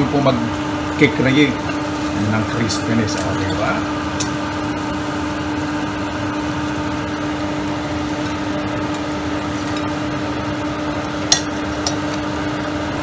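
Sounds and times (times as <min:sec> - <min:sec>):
low hum: 0:02.2 - 0:05.2.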